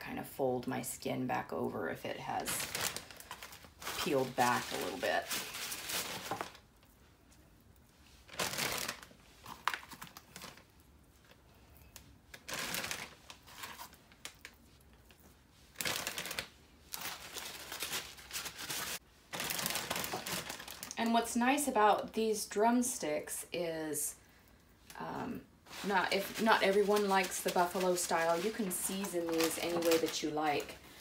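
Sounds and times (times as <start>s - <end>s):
plastic bag crinkling: 2.2s - 7.0s, 8.2s - 21.4s, 25.6s - 31.0s.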